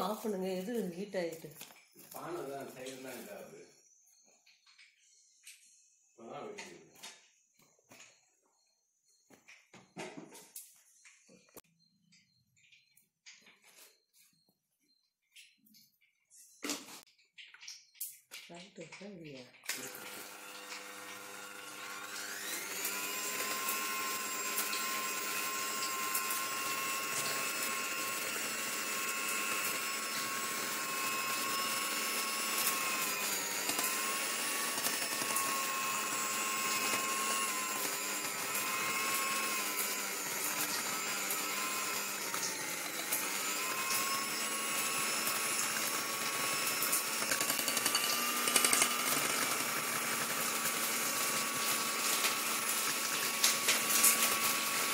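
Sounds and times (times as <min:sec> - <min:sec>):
electric hand mixer whisking: 0:00.0 - 0:03.7, 0:19.7 - 0:54.9.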